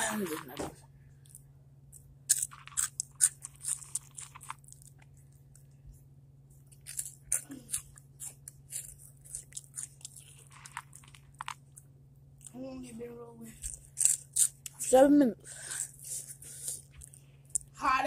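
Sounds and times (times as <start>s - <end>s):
person crunching hot chips: 2.0s - 5.2s, 6.7s - 11.8s, 13.6s - 14.8s.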